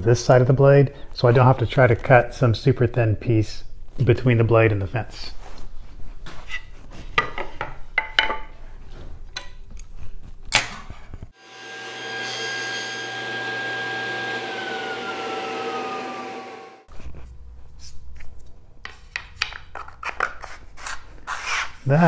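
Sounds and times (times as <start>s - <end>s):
wood and metal handling knocks: 7.2s - 8.5s
table saw ripping wood: 11.4s - 16.9s.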